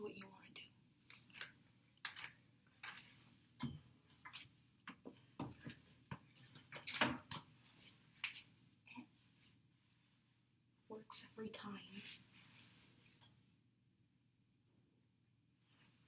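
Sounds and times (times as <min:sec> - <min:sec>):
clothing rustling: 0:01.0 - 0:10.5, 0:11.9 - 0:13.5, 0:15.6 - 0:16.0.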